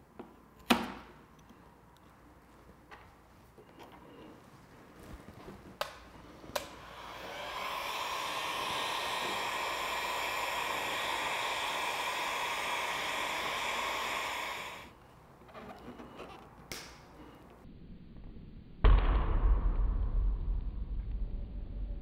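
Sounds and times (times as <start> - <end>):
heat gun blowing hot air: 6.5 - 15.0.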